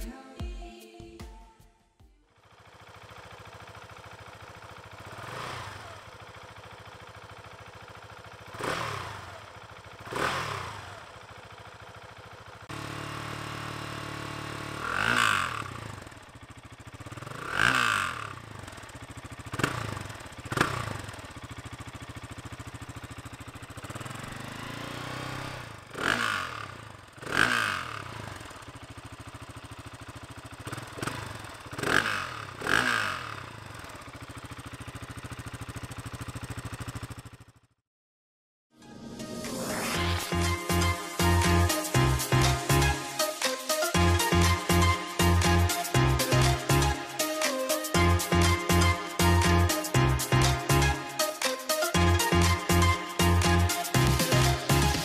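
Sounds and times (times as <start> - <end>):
motorcycle engine revving: 2.3 - 37.8.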